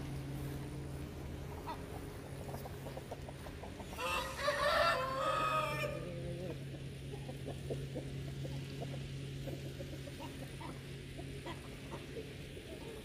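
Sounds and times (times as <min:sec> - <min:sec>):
chickens clucking softly: 0:00.0 - 0:13.0
steady low hum: 0:00.0 - 0:13.0
rooster crowing: 0:04.0 - 0:06.3.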